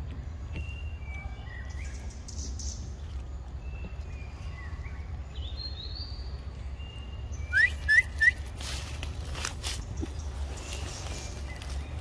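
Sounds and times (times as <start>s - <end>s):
bird whistling: 7.3s - 8.6s.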